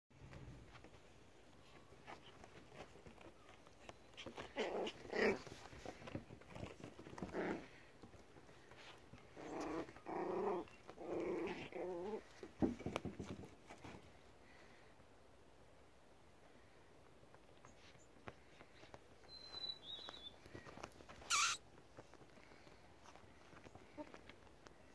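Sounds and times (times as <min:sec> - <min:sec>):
puppies calling: 0:21.3 - 0:21.6.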